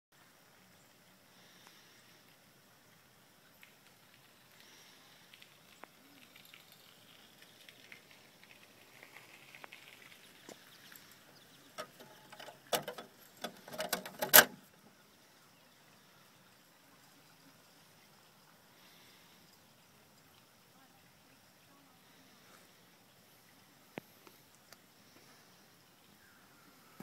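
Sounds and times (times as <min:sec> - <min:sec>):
toy truck sliding metal door: 0:11.8 - 0:14.6.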